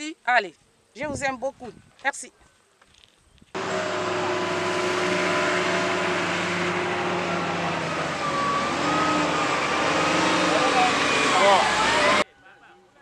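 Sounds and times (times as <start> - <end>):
engine running steadily: 3.6 - 12.2.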